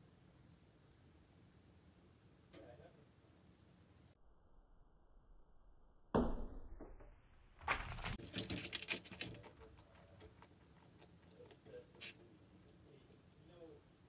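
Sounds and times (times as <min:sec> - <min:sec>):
lizard crunching food: 0:08.1 - 0:13.5.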